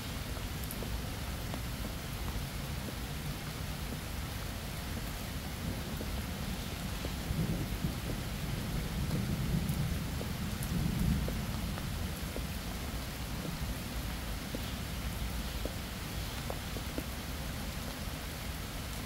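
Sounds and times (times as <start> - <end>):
rain hissing: 0.0 - 19.0
raindrops ticking: 0.0 - 19.0
distant thunder rumble: 7.2 - 12.3.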